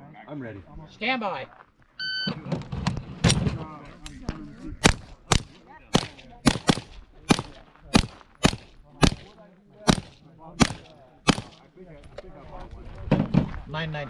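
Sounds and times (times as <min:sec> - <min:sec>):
rifle single shots: 0:04.8 - 0:11.6.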